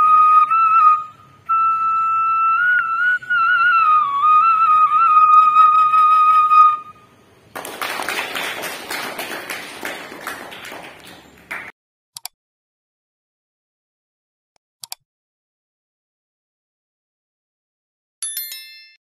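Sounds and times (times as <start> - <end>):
flute note: 0.0 - 7.1
people clapping: 7.5 - 11.7.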